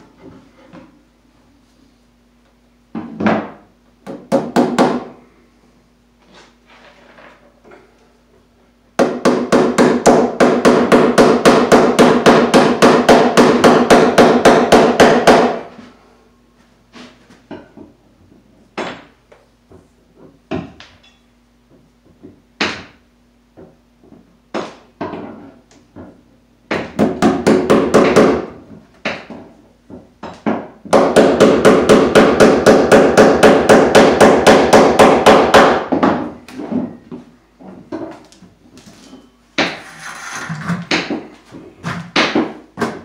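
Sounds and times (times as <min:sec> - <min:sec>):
hammer striking wood: 0:04.1 - 0:05.1, 0:09.0 - 0:15.6, 0:26.7 - 0:29.4, 0:30.2 - 0:36.3.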